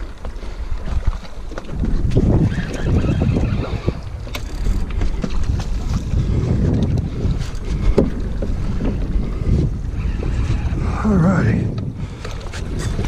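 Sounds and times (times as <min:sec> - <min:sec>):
wind buffeting microphone: 0:00.0 - 0:13.0
fishing reel clicking: 0:02.4 - 0:05.0.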